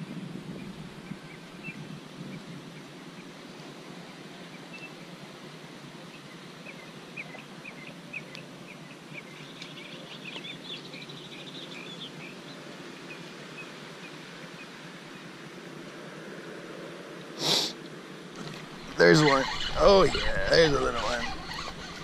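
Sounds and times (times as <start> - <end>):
wind on microphone: 0.0 - 3.2, 18.4 - 22.0
small birds chirping: 6.0 - 15.5, 17.8 - 22.0.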